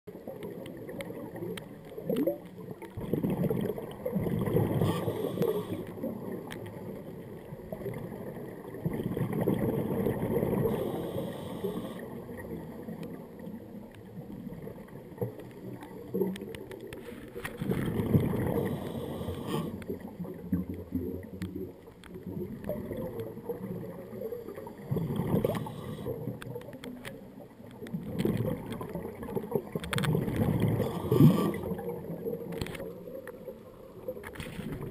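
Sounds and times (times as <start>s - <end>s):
exhaled bubbles gurgling: 0.1s - 34.9s
regulator inhalation hiss: 4.9s - 5.9s, 10.7s - 12.0s.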